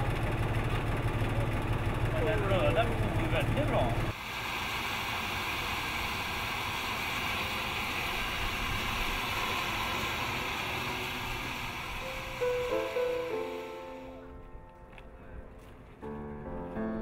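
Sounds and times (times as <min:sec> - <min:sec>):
gas burner hissing: 0:03.9 - 0:14.3.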